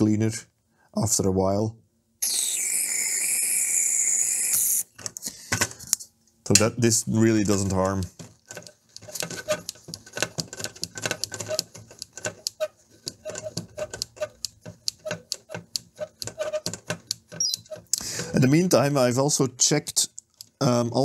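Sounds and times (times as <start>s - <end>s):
knob clicking: 8.5s - 17.9s.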